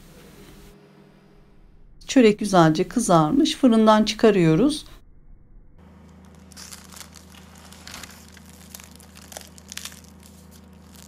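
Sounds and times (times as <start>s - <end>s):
low steady hum: 0.0s - 11.0s
flaky crust crackling: 5.8s - 11.0s.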